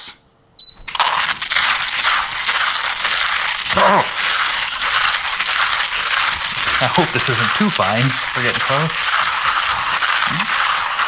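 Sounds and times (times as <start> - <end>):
short high beep: 0.6 - 1.0
hand coffee grinder crunching beans: 0.9 - 11.0.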